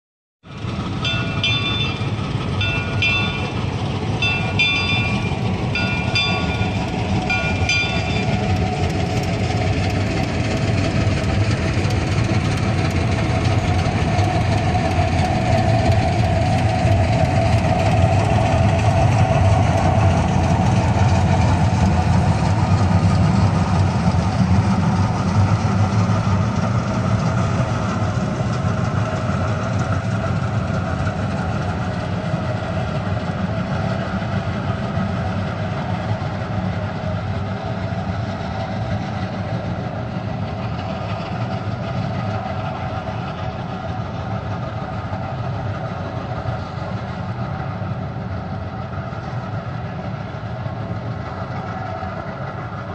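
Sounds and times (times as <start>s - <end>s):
steam locomotive rumble: 0.4s - 52.9s
locomotive bell ringing: 0.6s - 9.0s.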